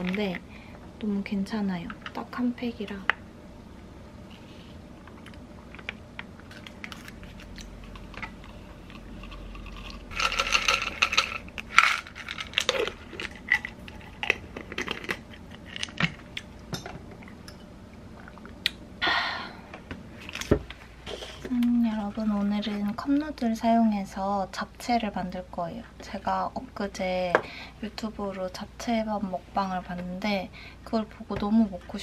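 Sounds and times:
capsules rattling in plastic bottle: 9.6 - 16.0.

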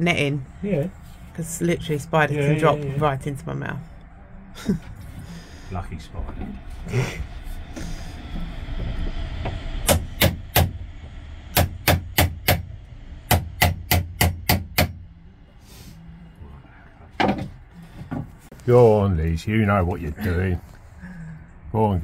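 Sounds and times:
hammer striking chisel: 9.9 - 10.7, 11.5 - 12.7, 13.3 - 15.0.

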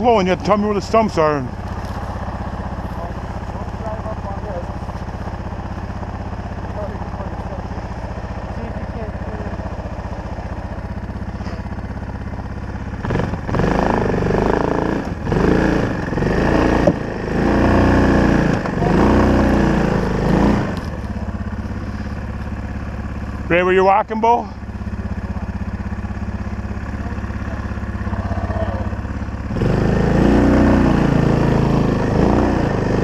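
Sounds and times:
atv engine idling and revving: 0.0 - 33.0.

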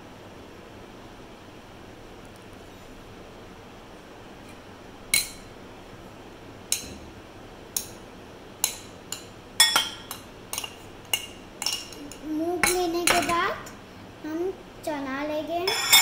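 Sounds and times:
spoon clinking glass dishes: 8.6 - 12.0, 15.7 - 16.0.

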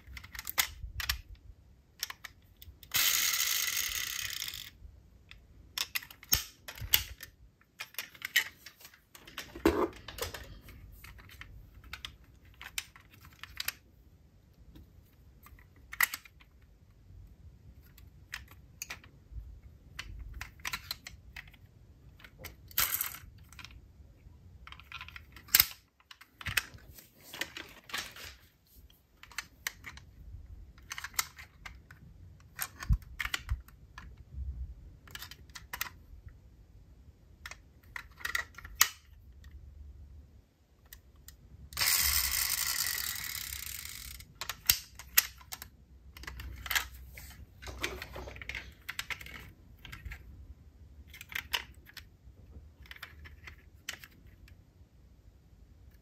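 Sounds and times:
metal toy cars clicking: 0.0 - 1.4, 2.0 - 13.8, 15.4 - 16.7, 17.8 - 19.2, 19.8 - 23.8, 24.6 - 26.8, 29.2 - 34.2, 35.0 - 36.0, 40.8 - 50.3, 51.0 - 52.1, 52.7 - 54.6.

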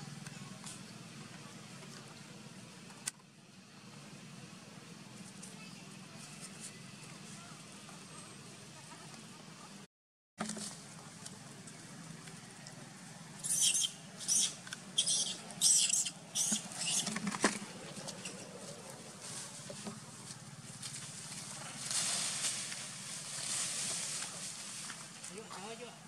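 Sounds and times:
monkey squealing: 13.4 - 17.1.

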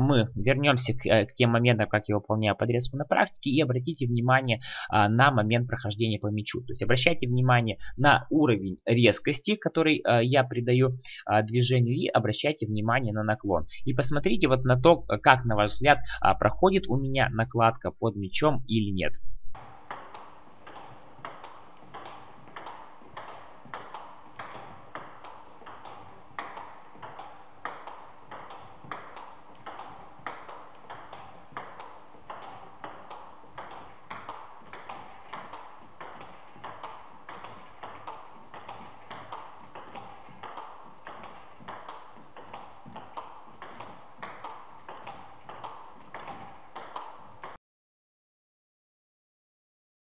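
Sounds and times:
ping pong ball bouncing on table: 19.6 - 47.6
ping pong ball hitting rackets: 19.6 - 47.6.

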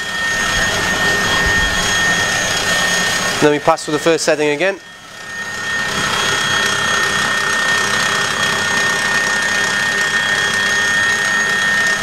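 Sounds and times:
stand mixer motor whine: 0.0 - 12.0.

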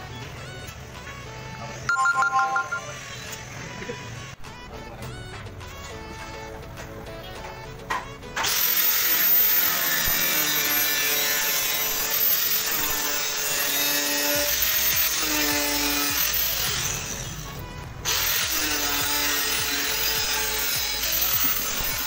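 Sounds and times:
angle grinder cutting metal: 8.4 - 22.0.

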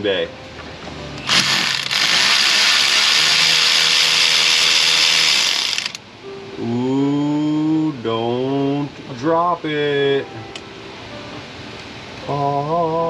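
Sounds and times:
cordless power driver running: 1.2 - 6.0.

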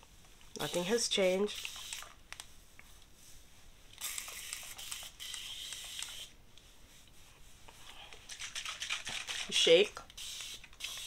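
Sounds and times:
spray bottle mist hissing: 1.6 - 2.1, 4.0 - 6.3, 10.1 - 11.0.

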